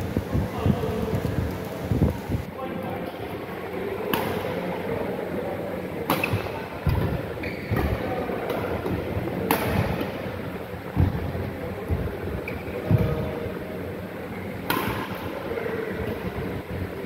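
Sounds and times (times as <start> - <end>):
steady background hum: 0.0 - 17.0
rackets striking shuttlecock: 6.1 - 10.2, 14.6 - 15.4.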